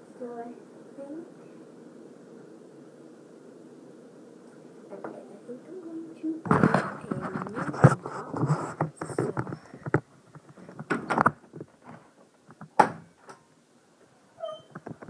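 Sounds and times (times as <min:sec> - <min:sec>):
cloth brushing microphone: 0:06.5 - 0:10.8
recorder handling noise: 0:06.5 - 0:13.4.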